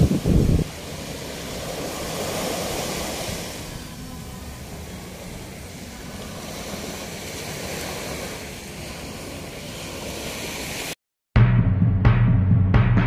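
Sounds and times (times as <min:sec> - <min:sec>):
wind rumbling on microphone: 0:00.0 - 0:10.6
sea waves washing onto beach: 0:00.0 - 0:11.0.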